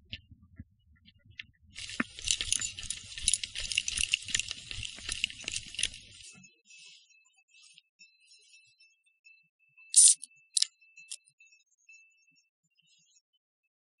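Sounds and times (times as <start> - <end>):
carabiners jangling and clinking: 1.8 - 6.2, 10.0 - 10.7.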